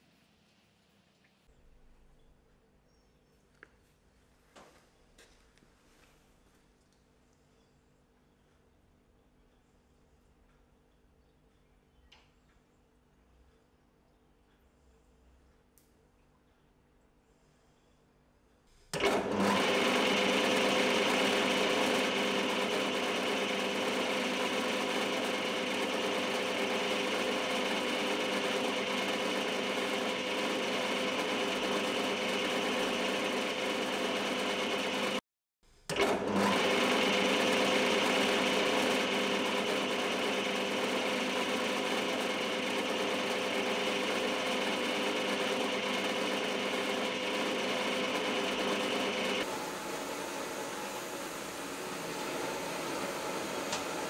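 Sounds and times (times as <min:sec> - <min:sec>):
metal lathe whining: 0:19.0 - 0:35.2, 0:36.0 - 0:54.0
drill boring into metal: 0:36.0 - 0:54.0.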